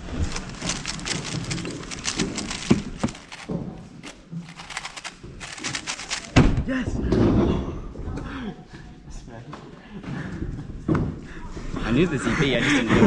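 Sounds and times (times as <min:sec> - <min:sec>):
puzzle cube plastic clicks: 0:00.0 - 0:06.4.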